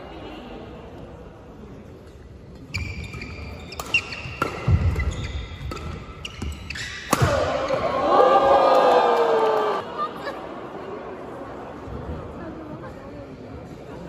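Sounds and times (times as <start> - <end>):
shoes squeaking on court: 2.6 - 7.8
rackets hitting shuttlecock: 2.7 - 7.9.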